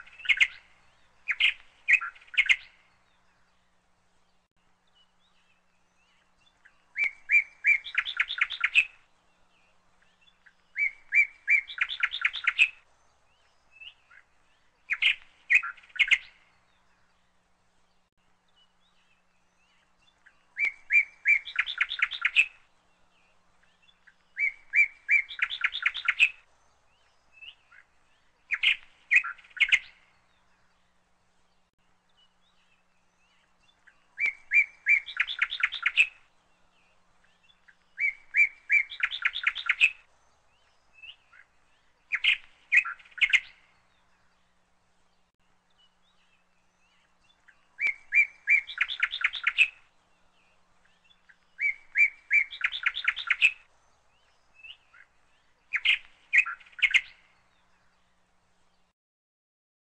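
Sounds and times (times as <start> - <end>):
songbird singing with trill: 0.0 - 58.9.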